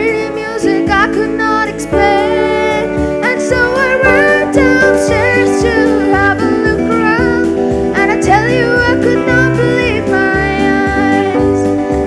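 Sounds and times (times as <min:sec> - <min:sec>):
acoustic guitar: 0:00.0 - 0:12.0.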